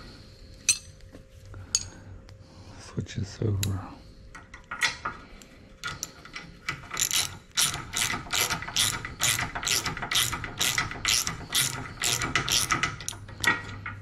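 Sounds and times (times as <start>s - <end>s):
socket ratchet clicking: 6.9s - 13.2s.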